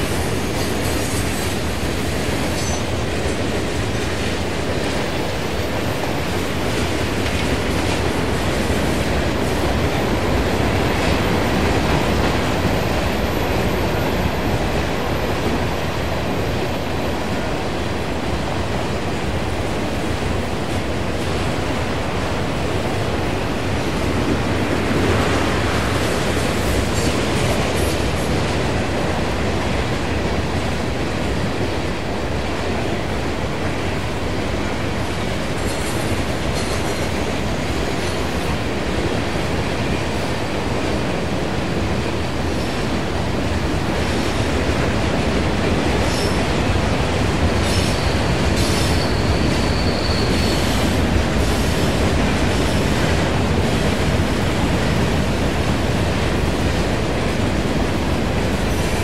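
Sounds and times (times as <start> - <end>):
train wheels rumbling and clattering: 0.0 - 59.0
high wheel squeal: 47.6 - 51.7.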